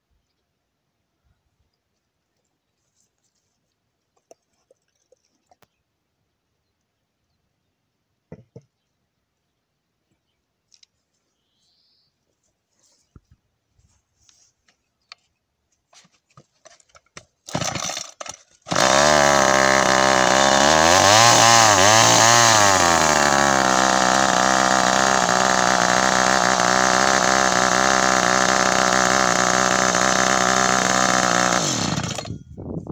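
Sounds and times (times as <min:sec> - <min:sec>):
chainsaw starter rattle: 0:16.6 - 0:32.6
chainsaw engine revving: 0:17.4 - 0:32.4.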